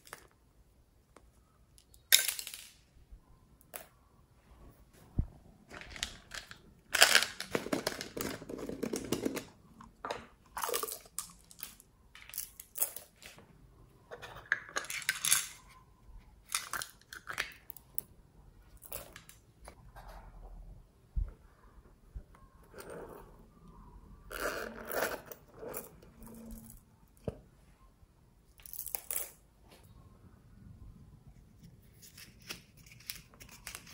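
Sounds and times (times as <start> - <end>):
beads rattling in containers: 5.7 - 9.5
plastic containers clicking and knocking: 5.7 - 10.9.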